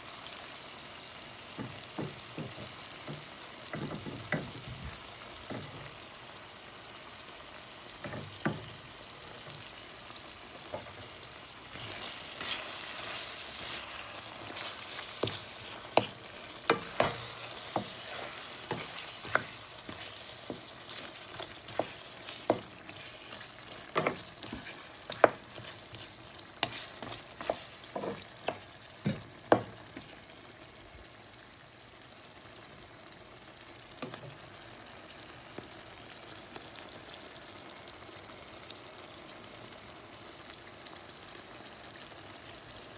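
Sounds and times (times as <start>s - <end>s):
curry sizzling in a metal pan: 0.0s - 42.9s
wooden spoon scraping a pan: 11.7s - 30.2s.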